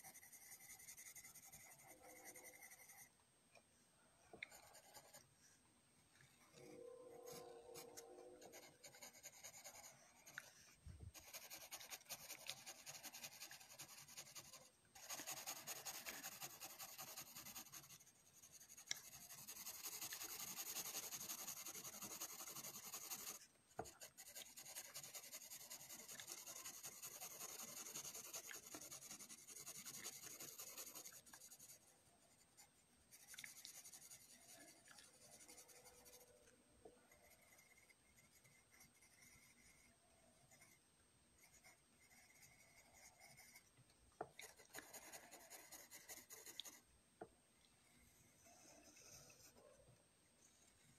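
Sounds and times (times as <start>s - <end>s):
pencil scratching on paper: 0.0s - 3.1s, 4.4s - 5.3s, 6.4s - 40.8s, 41.4s - 43.7s, 44.4s - 46.8s, 47.8s - 49.7s.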